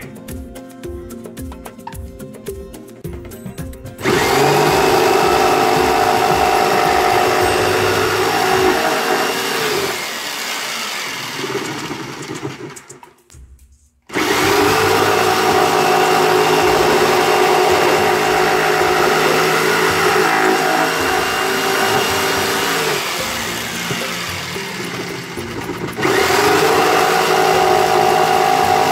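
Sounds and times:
jigsaw motor whining: 4.0s - 12.9s, 14.1s - 28.9s.

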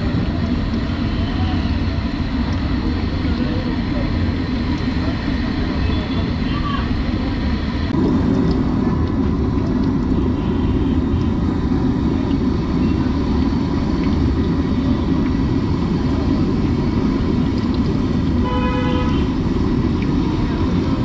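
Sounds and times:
city street rumble: 0.0s - 21.0s
vehicle horn beep: 10.3s - 11.0s, 18.4s - 19.3s.

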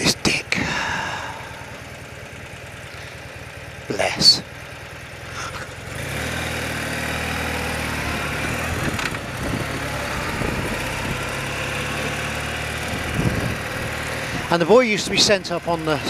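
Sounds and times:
motorcycle engine pulling away: 4.5s - 16.0s.

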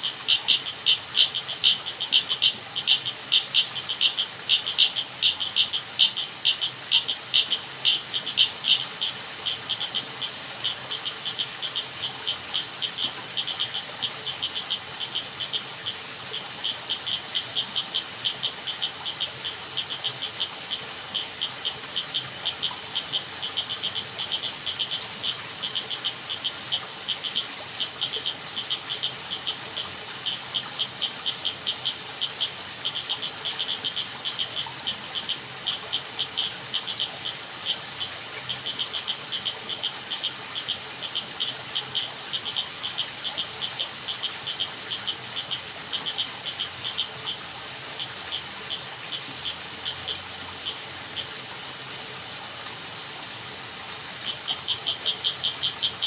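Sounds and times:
frogs calling: 0.0s - 56.0s
insect hiss: 0.0s - 56.0s.

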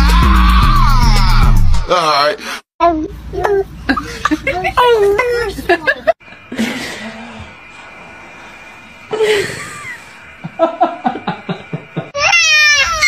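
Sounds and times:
baby giggling: 3.4s - 6.1s.

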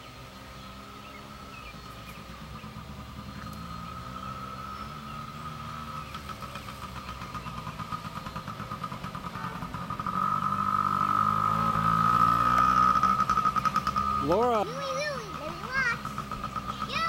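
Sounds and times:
dirt bike engine running: 0.0s - 17.0s.

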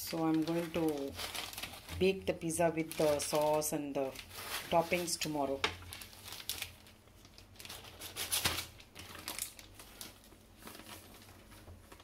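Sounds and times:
plastic bag crinkling: 0.0s - 12.0s.

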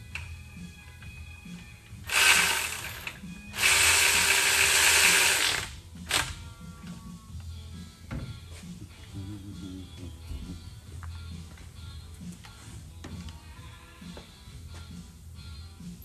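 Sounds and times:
electric ratchet running: 2.0s - 6.4s.

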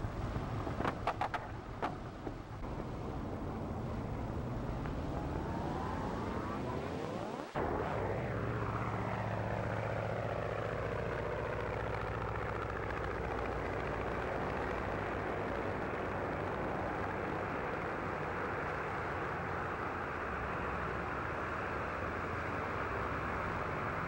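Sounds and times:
propeller plane engine droning: 0.0s - 24.0s.

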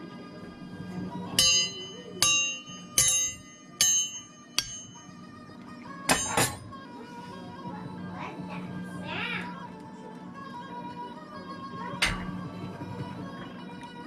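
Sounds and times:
sharp ringing metal clinks: 1.4s - 5.3s, 6.1s - 6.7s.

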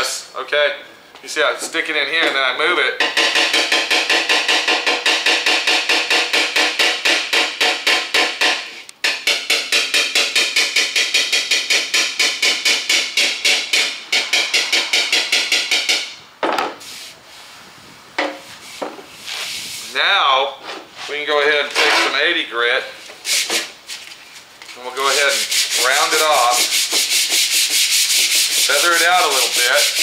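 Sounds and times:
hammer tapping on sheet metal: 3.0s - 16.8s.

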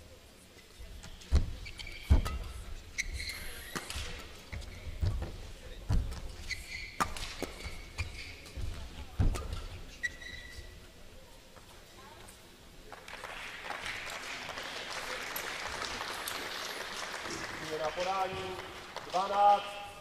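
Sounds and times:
shoes squeaking on floor: 1.0s - 10.8s
rackets hitting shuttlecock: 5.9s - 9.8s.

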